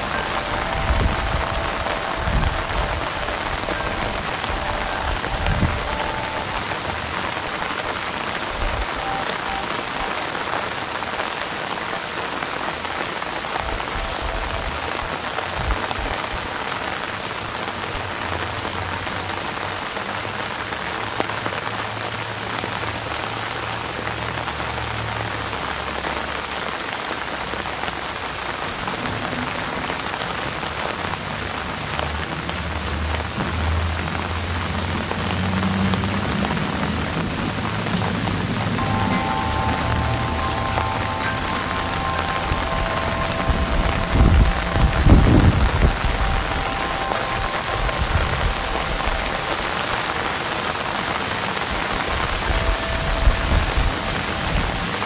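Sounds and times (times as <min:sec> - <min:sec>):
rain falling on leaves: 0:00.0 - 0:55.0.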